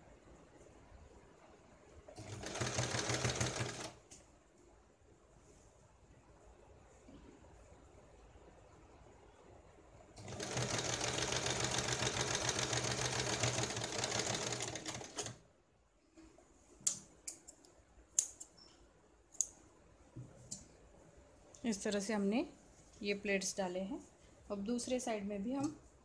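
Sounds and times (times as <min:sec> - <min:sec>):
sewing machine stitching: 0:02.2 - 0:04.0, 0:10.2 - 0:15.4.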